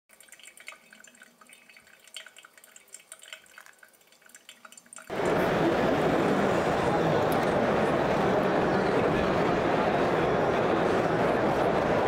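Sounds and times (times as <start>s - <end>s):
faint drips and ticks: 0.1s - 5.1s
hubbub of voices: 5.1s - 12.0s.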